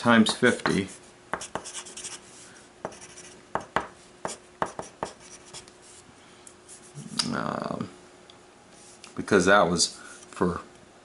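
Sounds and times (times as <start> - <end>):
pencil tapping on paper: 0.2 - 2.1, 2.8 - 5.3
pencil scratching on paper: 0.8 - 6.0.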